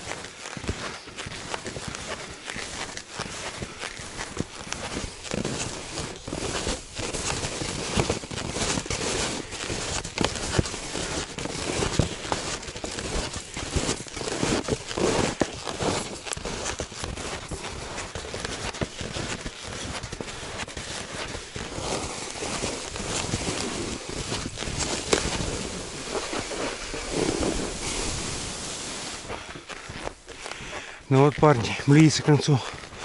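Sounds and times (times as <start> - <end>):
skis crunching on frozen snow: 0.0 - 33.0.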